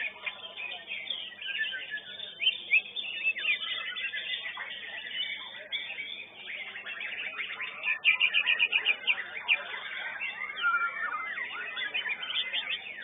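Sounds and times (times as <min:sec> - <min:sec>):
birds singing: 0:00.0 - 0:13.0.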